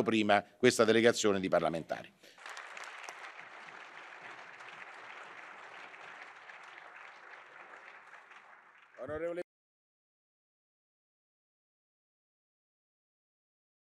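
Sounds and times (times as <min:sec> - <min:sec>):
audience applause in a large hall: 0:02.2 - 0:09.4.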